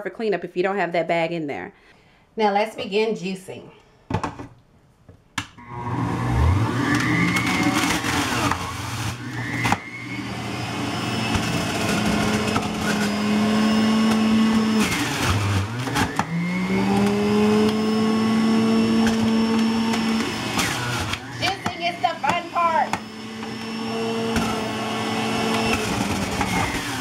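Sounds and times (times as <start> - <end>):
electric juicer motor whining: 5.6 - 27.0.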